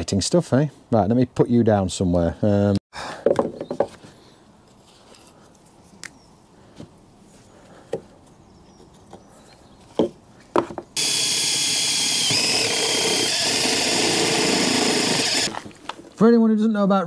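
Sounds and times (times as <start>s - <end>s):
cordless drill whining through steel: 11.0s - 15.7s.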